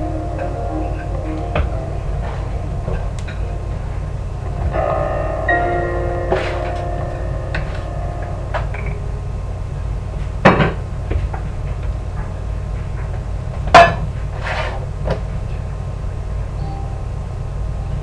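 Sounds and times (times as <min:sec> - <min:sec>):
dishes and utensils clinking: 0:04.5 - 0:09.0.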